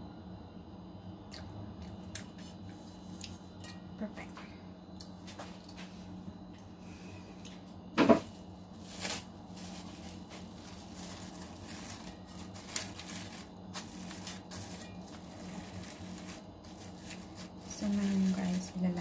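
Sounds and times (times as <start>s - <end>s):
plastic wrap crinkling: 8.0s - 19.0s.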